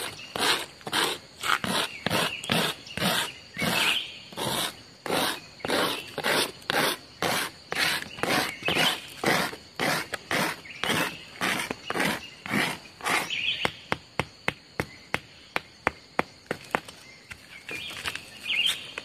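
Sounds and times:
footsteps on forest floor: 0:16.4 - 0:19.0.

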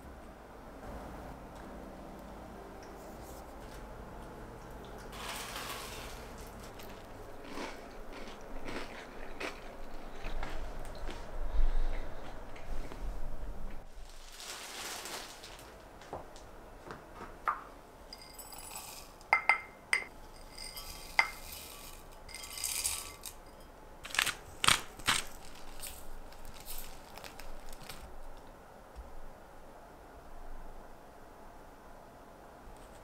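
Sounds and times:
spoon clinking against glass: 0:18.1 - 0:23.7
sugar pouring into glass: 0:18.2 - 0:19.6, 0:20.3 - 0:23.6.

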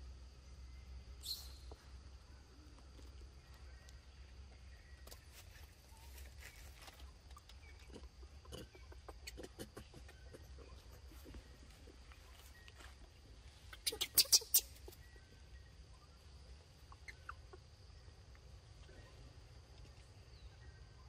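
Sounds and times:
rustling on dry leaves: 0:05.3 - 0:07.2
monkeys chewing: 0:07.3 - 0:12.2.

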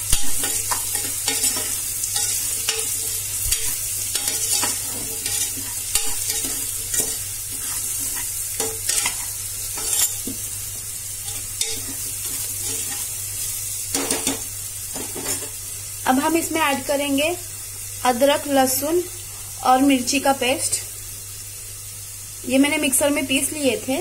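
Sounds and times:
vegetables sizzling in hot oil: 0:00.0 - 0:24.0
metal spoon scraping a pot: 0:00.4 - 0:10.2.

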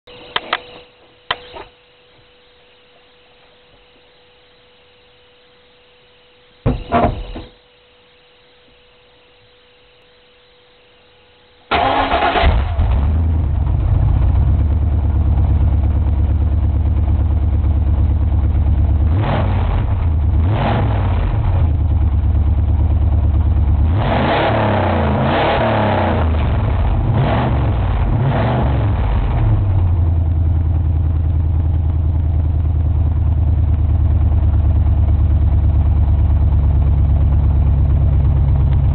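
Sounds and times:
engine starting: 0:11.7 - 0:13.2
engine revving: 0:11.7 - 0:17.1, 0:18.5 - 0:30.2
engine idling loudly: 0:11.7 - 0:38.9.

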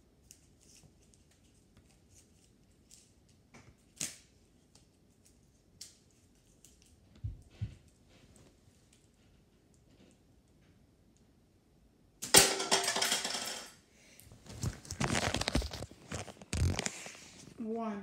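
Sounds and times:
faint clicks and rustles: 0:14.2 - 0:17.6.

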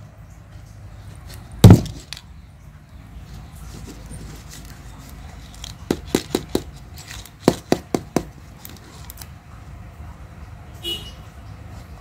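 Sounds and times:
plastic eggs being tapped: 0:05.4 - 0:08.4.

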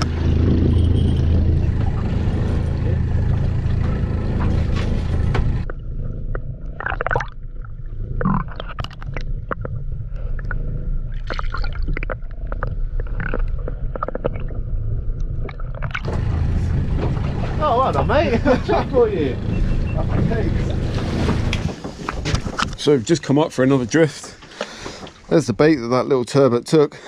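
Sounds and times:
underwater gurgling and sloshing: 0:00.0 - 0:23.2
boat engine humming: 0:00.0 - 0:25.5
underwater clicks and knocks: 0:03.3 - 0:16.3.

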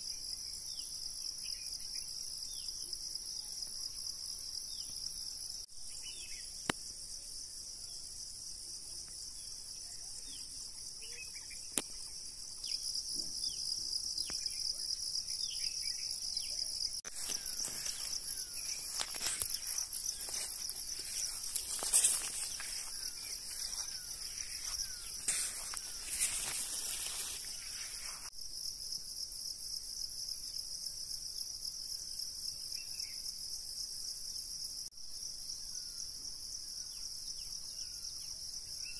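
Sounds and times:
faint chirps: 0:00.0 - 0:28.3
shrill insect chorus: 0:00.0 - 0:38.9
footsteps through a field: 0:17.0 - 0:28.3
leaves rustling: 0:17.0 - 0:28.3.

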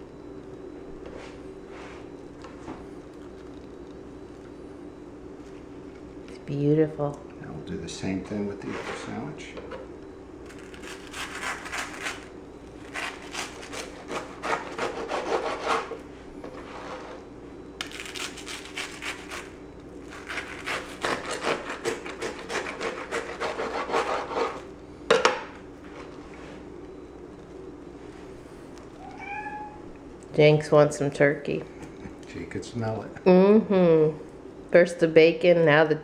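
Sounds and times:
knife sawing through toast: 0:12.9 - 0:15.9, 0:20.2 - 0:24.6.

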